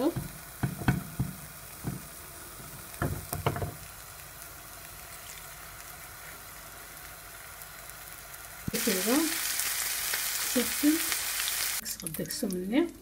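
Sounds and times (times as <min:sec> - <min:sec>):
oil sizzling in pan: 0:00.0 - 0:13.0
soft knocks: 0:03.0 - 0:03.8.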